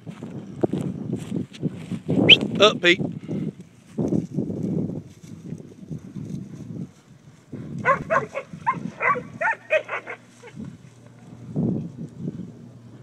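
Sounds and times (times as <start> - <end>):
puppies yipping: 7.8 - 10.6.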